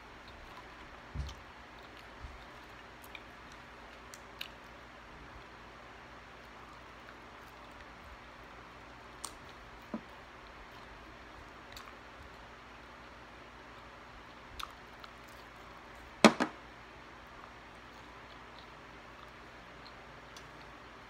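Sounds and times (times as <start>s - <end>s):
low steady hiss: 0.0s - 21.0s
cup knocking on table: 16.2s - 16.6s.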